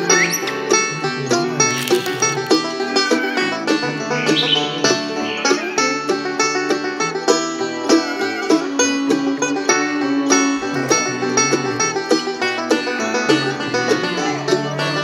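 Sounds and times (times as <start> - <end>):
plucked-string music: 0.0 - 15.0.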